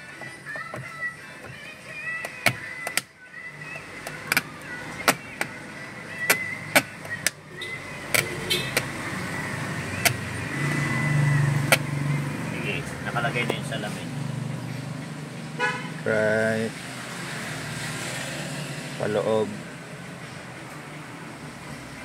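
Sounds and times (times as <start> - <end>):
sharp plastic clicks and snaps: 2.2 - 3.1, 6.2 - 7.4.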